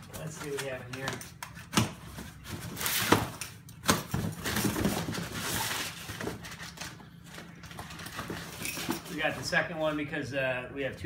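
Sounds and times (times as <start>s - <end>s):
packing paper rustling and crinkling: 4.0s - 9.5s.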